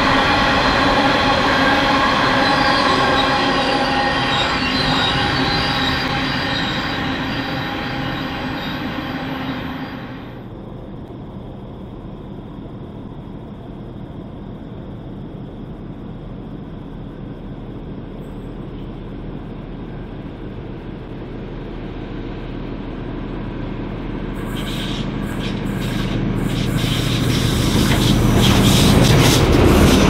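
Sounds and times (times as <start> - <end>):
diesel train approaching: 0.0 - 13.6, 16.2 - 30.0
high hiss: 24.4 - 30.0.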